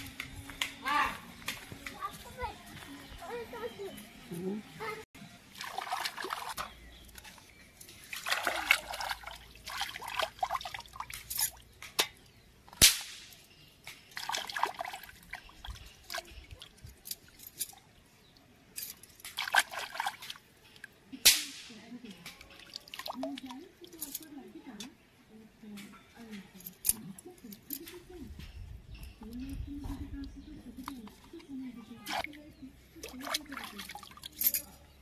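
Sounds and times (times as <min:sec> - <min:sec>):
water sloshing and splashing: 0:05.4 - 0:11.7, 0:14.0 - 0:21.1, 0:22.3 - 0:24.4, 0:30.7 - 0:34.8.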